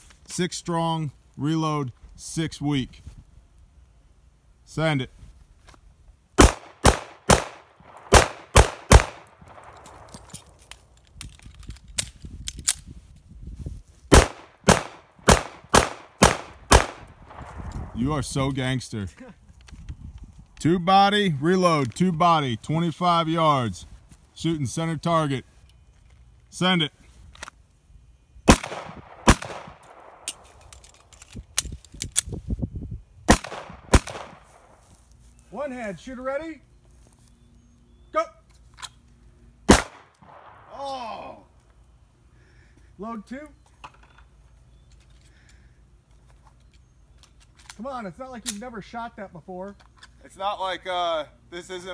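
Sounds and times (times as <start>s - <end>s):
pistol shots: 6.4s - 10.4s, 14.1s - 17.5s, 28.5s - 30.4s, 33.3s - 34.7s, 39.7s - 40.7s
magazine change clicks: 6.4s - 12.9s.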